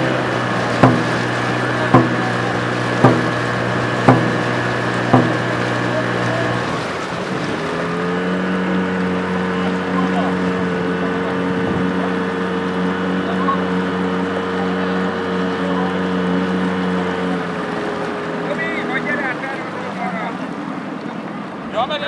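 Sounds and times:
motorboat engine running: 0.0 - 22.0
drum beating a rhythm: 0.8 - 6.5.

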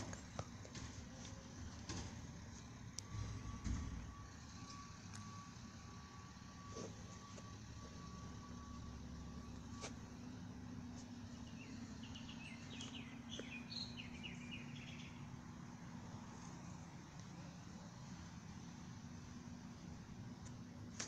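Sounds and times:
garbage truck engine drone: 0.0 - 21.0
bird chirps: 11.2 - 15.4.

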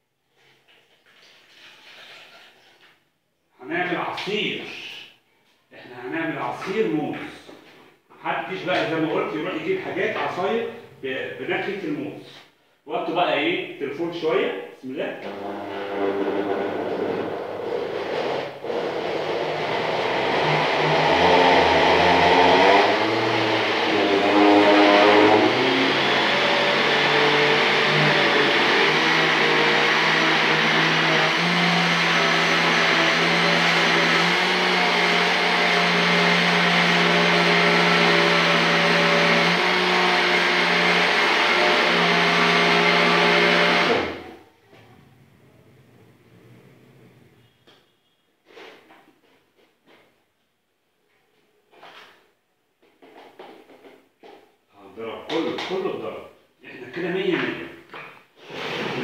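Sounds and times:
blender running: 15.2 - 44.4.

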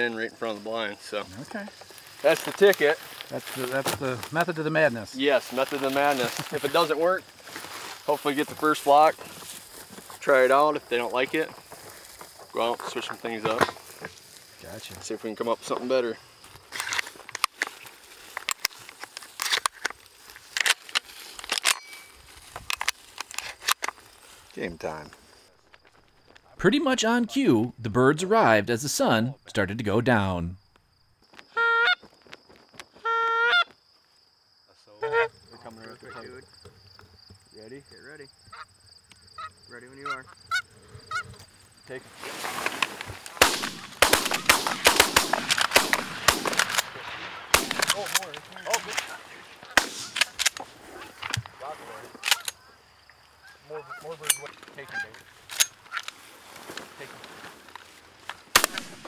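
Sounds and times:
handling rustle: 16.4 - 26.4, 42.1 - 43.4, 54.1 - 59.0
geese honking: 31.6 - 32.0, 33.0 - 33.7, 35.0 - 35.4, 53.4 - 55.2
shotgun shots: 43.4 - 48.2, 49.8 - 50.4, 58.5 - 59.0.

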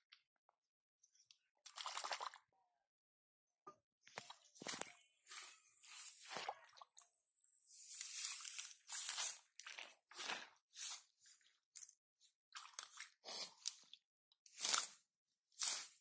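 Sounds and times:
hands rustling in wet grass: 7.7 - 11.3.

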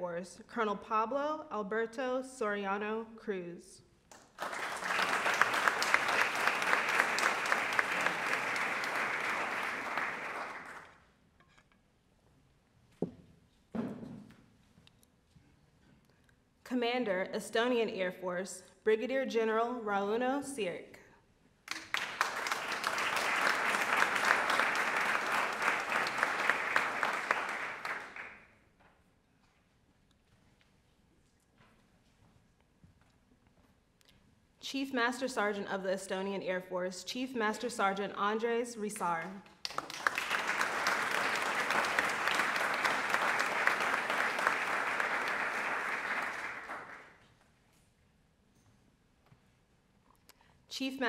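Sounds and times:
audience applauding: 4.4 - 11.0, 21.7 - 28.4, 39.6 - 47.2.

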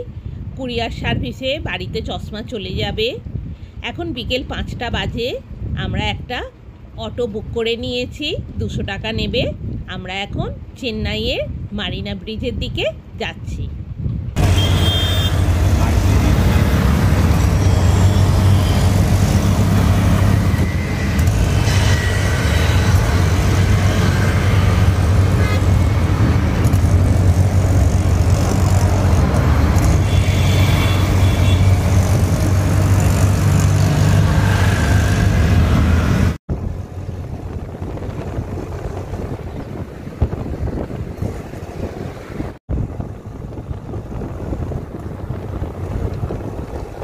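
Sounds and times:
road and wind noise: 0.0 - 47.0
vehicle horn toots: 14.4 - 15.6, 25.3 - 25.8, 29.9 - 32.0
auto-rickshaw engine running: 14.4 - 47.0.

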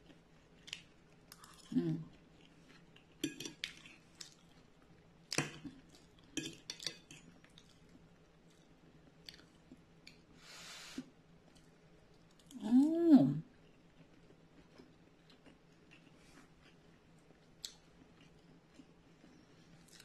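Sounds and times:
fork clinking on ceramic plate: 3.2 - 3.6.

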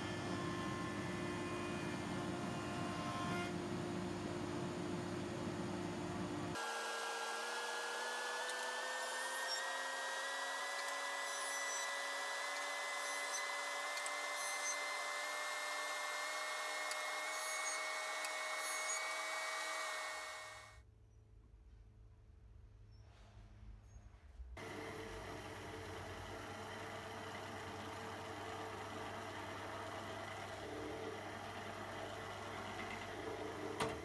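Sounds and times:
jointer machine humming: 6.5 - 20.7, 24.6 - 34.0.

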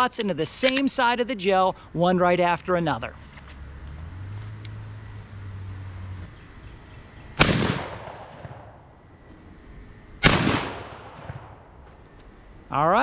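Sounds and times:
shotgun shot: 7.4 - 8.8, 10.2 - 11.6.

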